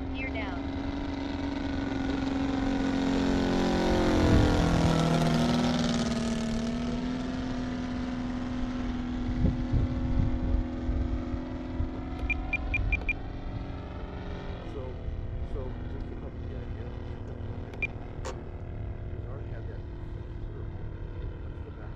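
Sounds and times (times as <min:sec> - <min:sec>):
model plane engine flying past: 0:00.0 - 0:21.9
short high beeps: 0:12.2 - 0:13.2.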